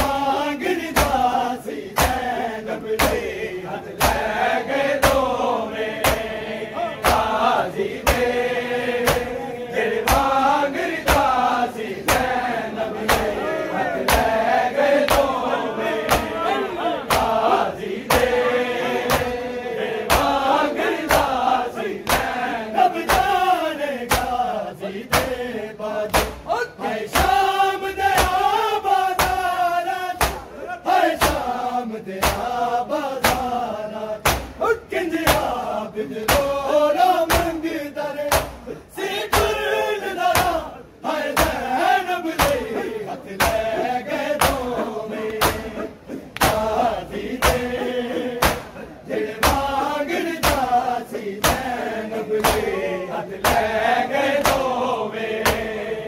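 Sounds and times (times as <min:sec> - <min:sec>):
men chanting: 0:00.0 - 0:56.0
palms striking chests in unison: 0:06.0 - 0:06.3, 0:09.0 - 0:09.4, 0:16.0 - 0:16.4, 0:19.0 - 0:19.4, 0:23.1 - 0:23.4, 0:24.1 - 0:24.4, 0:26.1 - 0:26.5, 0:29.2 - 0:29.5, 0:30.2 - 0:30.6, 0:31.2 - 0:31.5, 0:32.2 - 0:32.5, 0:33.2 - 0:33.6, 0:34.2 - 0:34.6, 0:38.3 - 0:38.7, 0:39.3 - 0:39.6, 0:40.3 - 0:40.6, 0:42.4 - 0:42.8, 0:44.4 - 0:46.8, 0:47.4 - 0:47.7, 0:48.4 - 0:48.8, 0:49.4 - 0:49.8, 0:50.4 - 0:50.8, 0:51.4 - 0:51.7.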